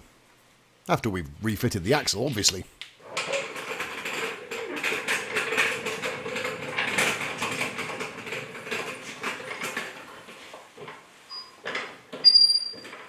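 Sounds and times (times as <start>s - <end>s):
trolley jack clicking and rattling: 3.1s - 11.0s.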